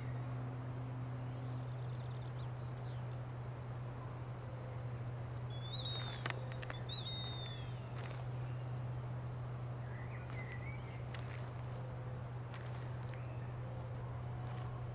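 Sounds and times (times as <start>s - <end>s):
whistled bird-like calls: 5.5s - 7.9s.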